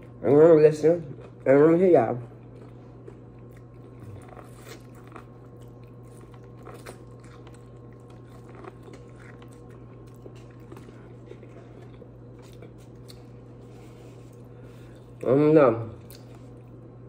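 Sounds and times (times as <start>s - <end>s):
chewing corn on the cob: 0.0s - 15.3s, 16.0s - 16.9s
faint steady hum: 0.0s - 17.0s.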